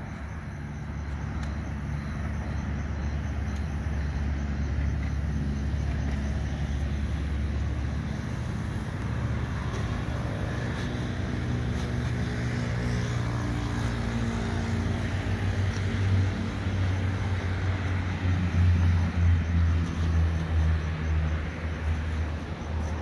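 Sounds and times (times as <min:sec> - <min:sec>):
low engine hum: 0:00.0 - 0:23.0.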